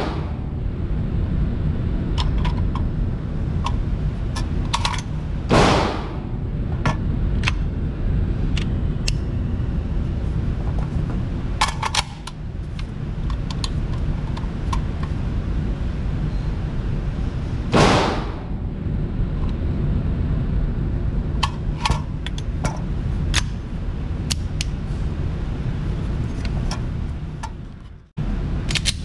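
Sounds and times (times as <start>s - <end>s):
loud gunshot: 0.0s - 0.5s, 5.5s - 6.3s, 17.7s - 18.5s
low rumble: 0.0s - 28.8s.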